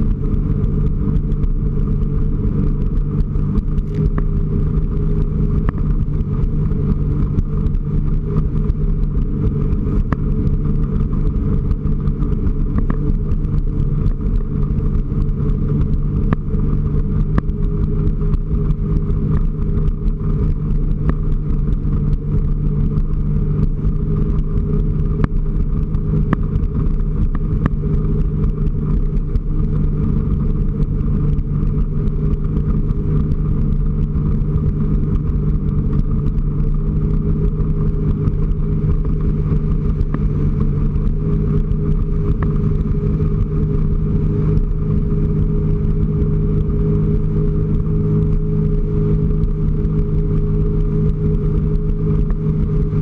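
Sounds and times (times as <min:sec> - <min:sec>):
watercraft engine droning: 0:00.0 - 0:53.0.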